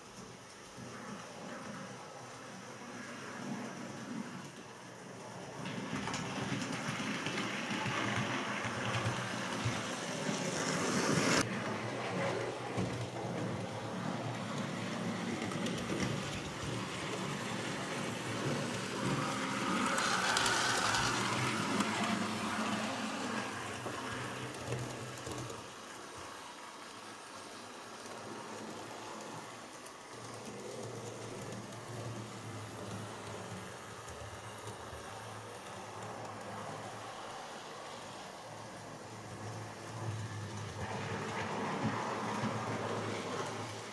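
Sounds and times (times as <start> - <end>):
model train wheels rattling on track: 5.4 - 37.8.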